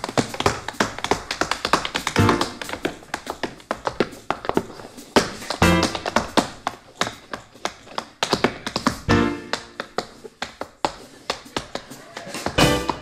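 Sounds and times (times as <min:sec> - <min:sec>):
tap shoes on stage floor: 0:00.0 - 0:13.0
jazz trio playing: 0:05.6 - 0:06.0, 0:09.1 - 0:09.8, 0:12.5 - 0:13.0.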